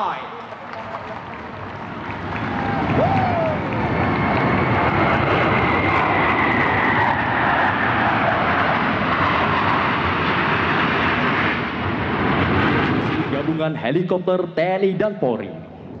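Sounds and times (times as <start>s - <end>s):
fighter jets flying overhead: 0.0s - 16.0s.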